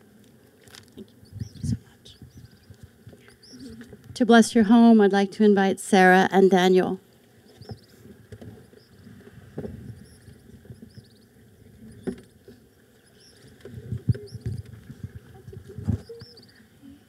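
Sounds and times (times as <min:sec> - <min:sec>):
small birds chirping: 0:01.0 - 0:04.0, 0:07.4 - 0:09.2, 0:09.8 - 0:17.0.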